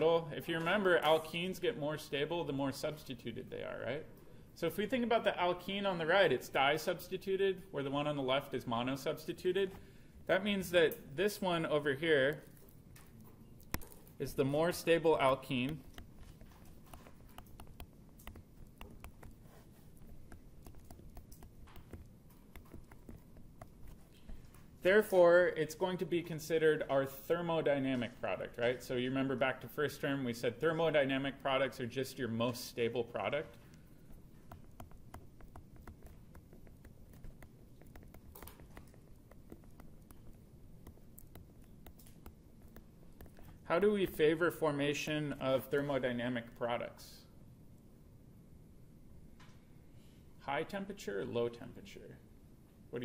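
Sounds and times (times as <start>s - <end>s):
low room hum: 0.0s - 53.0s
stylus tapping on tablet screen: 13.6s - 14.1s, 14.7s - 24.7s, 33.7s - 44.2s.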